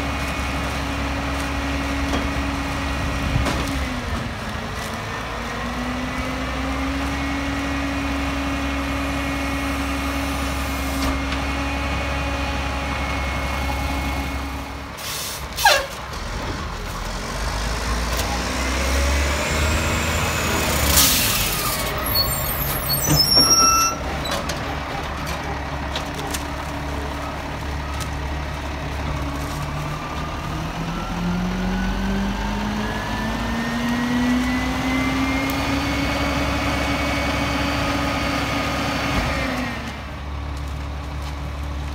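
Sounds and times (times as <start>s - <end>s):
garbage truck diesel engine: 0.0s - 41.9s
air brake hisses: 15.0s - 15.9s.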